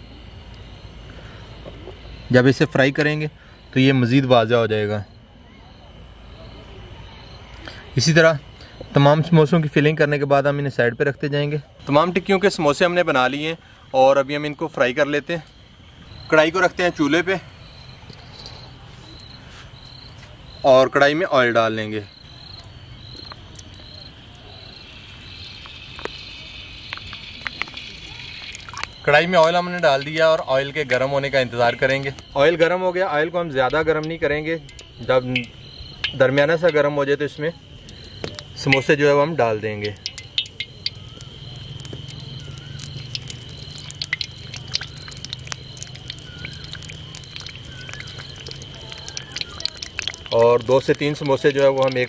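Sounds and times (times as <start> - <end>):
crickets chirping: 0.0 - 52.0
oil pouring into a pan: 23.0 - 29.2, 39.8 - 52.0
faint clicks: 39.8 - 52.0.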